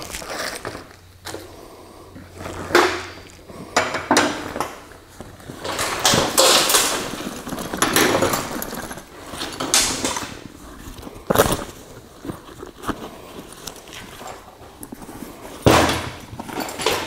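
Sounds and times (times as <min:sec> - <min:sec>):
fabric bag rustling: 0:05.1 - 0:15.6
hand tools clattering on steel table: 0:05.6 - 0:10.4, 0:15.6 - 0:17.0.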